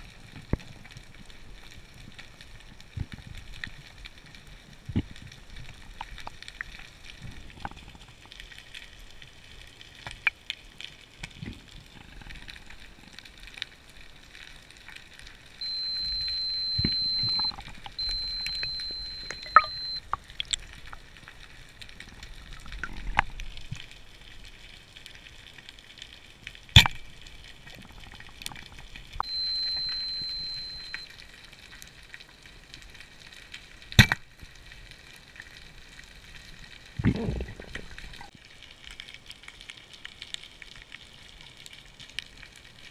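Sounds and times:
watch alarm beeping: 0:15.6 - 0:20.0, 0:29.2 - 0:31.1.

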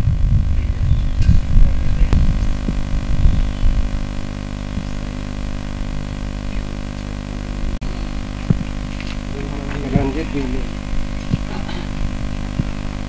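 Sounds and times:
low rumbling bumps: 0:00.0 - 0:06.2
electrical hum and buzz: 0:00.0 - 0:13.0.

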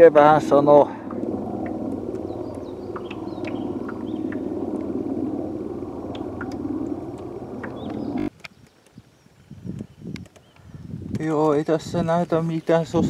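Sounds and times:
helicopter drone overhead: 0:00.0 - 0:08.3
faint bird chirps: 0:02.2 - 0:04.5.

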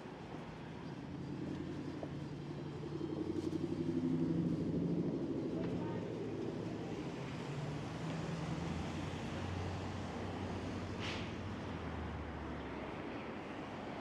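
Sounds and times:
street traffic noise: 0:00.0 - 0:14.0
brief hiss: 0:11.0 - 0:11.3.

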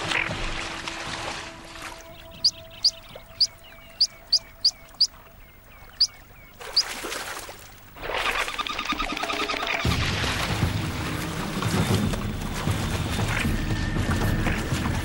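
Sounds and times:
loud splashing water: 0:00.0 - 0:03.8, 0:06.6 - 0:15.0
ducklings peeping: 0:02.2 - 0:07.0.

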